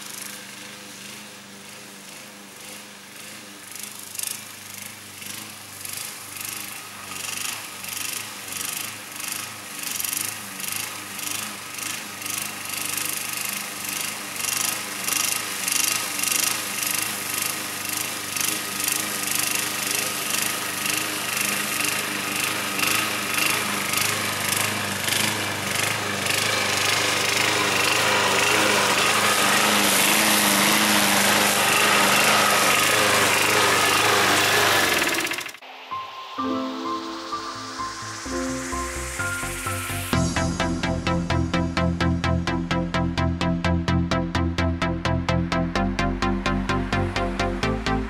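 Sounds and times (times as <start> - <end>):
lawn mower cutting grass: 0.0 - 35.6.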